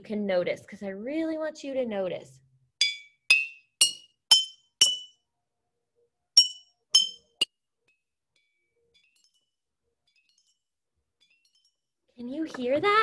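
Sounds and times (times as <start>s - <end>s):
knife tapping glass jars: 2.8s - 5.1s, 6.4s - 7.5s.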